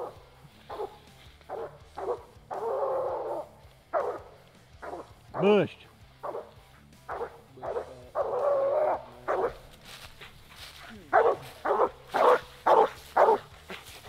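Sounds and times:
hound barking: 0.0s - 14.0s.

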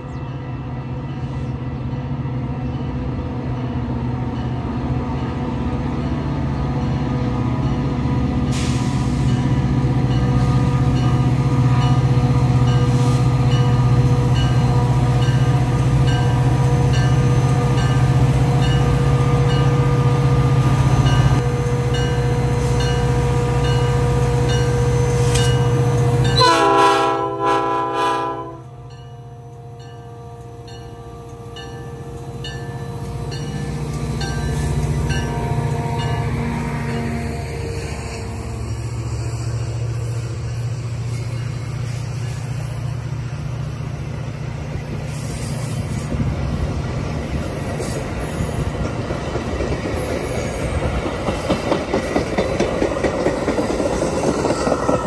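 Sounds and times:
diesel locomotive drone: 0.0s - 55.0s
locomotive bell dinging: 9.3s - 20.3s, 28.8s - 36.3s
train air horn: 26.3s - 32.0s, 35.3s - 38.3s.

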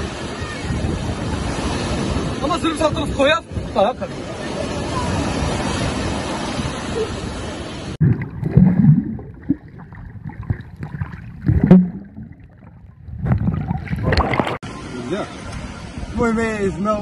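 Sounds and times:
sea surf washing: 0.0s - 17.0s
water splashing: 4.9s - 15.8s
dull underwater knocks: 8.0s - 14.6s
underwater gurgling and bubbling: 8.0s - 14.6s.

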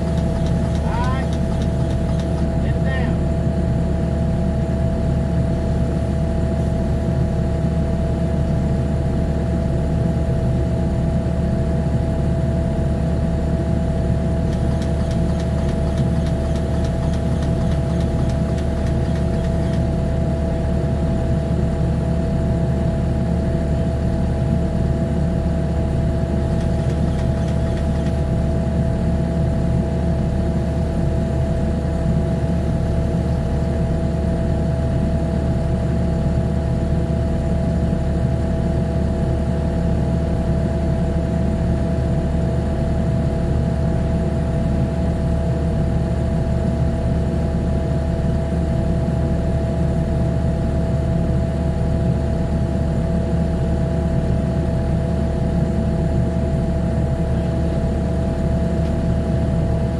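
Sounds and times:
diesel engine idling: 0.0s - 3.3s, 14.4s - 20.0s.

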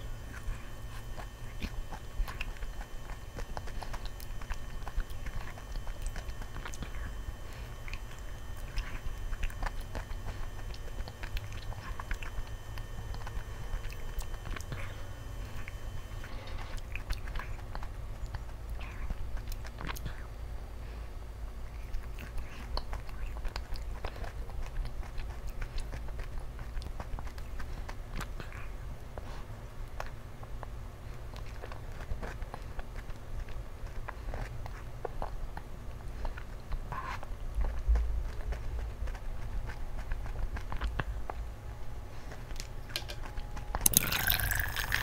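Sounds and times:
chewing crunchy ice cream coating: 0.0s - 45.0s
steady low hum: 0.0s - 45.0s.

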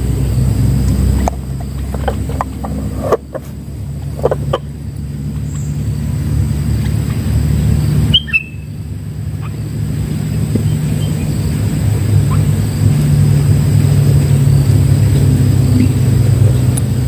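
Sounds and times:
low rumble: 0.0s - 17.0s
bird chirps: 7.6s - 12.7s.

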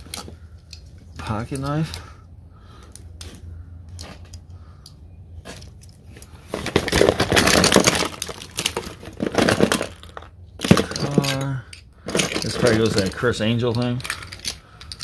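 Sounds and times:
small objects clattering: 5.4s - 15.0s.

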